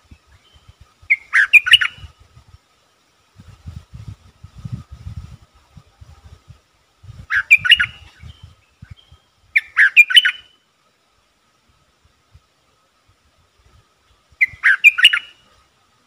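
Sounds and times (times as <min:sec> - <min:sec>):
bird chirping song: 0:00.0 - 0:02.2, 0:07.2 - 0:10.7, 0:14.0 - 0:15.6.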